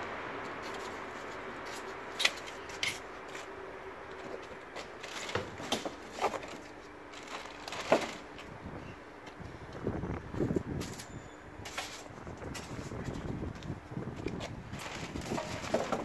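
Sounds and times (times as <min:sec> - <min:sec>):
plastic wrapping crackling: 0:06.5 - 0:08.3, 0:14.7 - 0:16.0.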